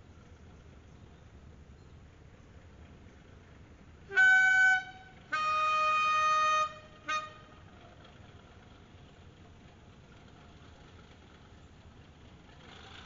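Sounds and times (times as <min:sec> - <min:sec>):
steam locomotive whistle: 0:04.1 - 0:07.7.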